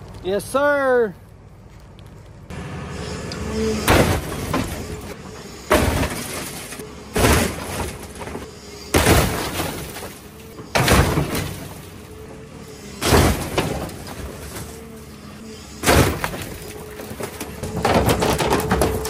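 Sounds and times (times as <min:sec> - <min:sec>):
sheet metal crunching: 0:03.7 - 0:12.2, 0:12.9 - 0:19.0.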